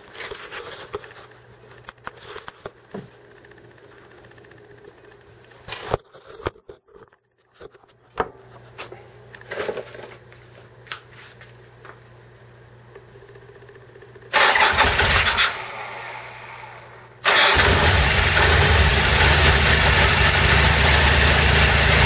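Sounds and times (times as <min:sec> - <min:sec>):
motorcycle engine starting: 0:14.3 - 0:22.0.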